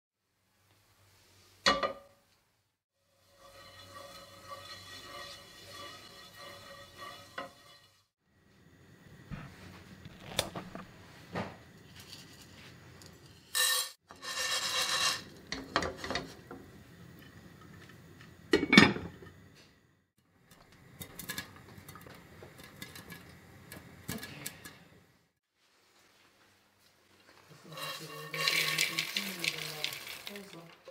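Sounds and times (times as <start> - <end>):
corn kernels rattling into pan: 20.5 - 24.7, 27.6 - 30.9.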